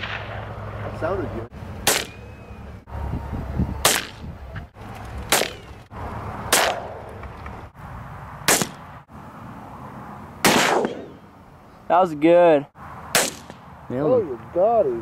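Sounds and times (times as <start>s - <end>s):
rifle shots: 0.0s - 1.0s, 1.8s - 2.2s, 3.8s - 4.2s, 6.5s - 7.0s, 8.5s - 8.8s, 10.4s - 11.2s, 13.1s - 13.6s.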